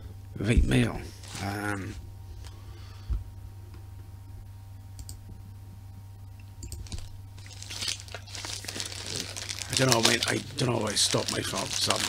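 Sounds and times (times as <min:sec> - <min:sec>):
steady low hum: 0:00.0 - 0:12.0
faint clicks: 0:05.0 - 0:05.2
parcel rustling and handling: 0:06.8 - 0:12.0.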